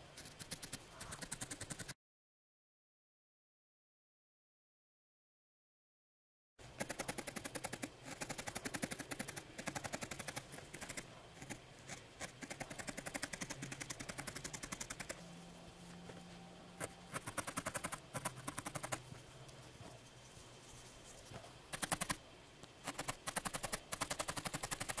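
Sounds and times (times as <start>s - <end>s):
felting needle pricking wool: 0.0s - 2.0s, 6.6s - 15.2s, 15.8s - 22.2s, 22.8s - 25.0s.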